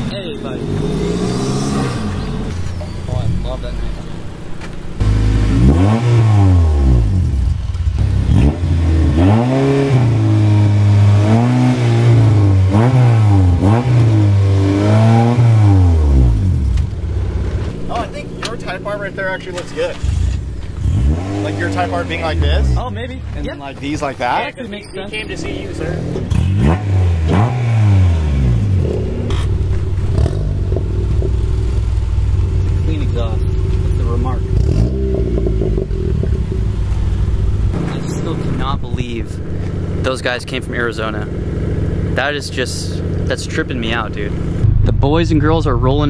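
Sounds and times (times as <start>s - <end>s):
car engine revving: 0.0s - 46.0s.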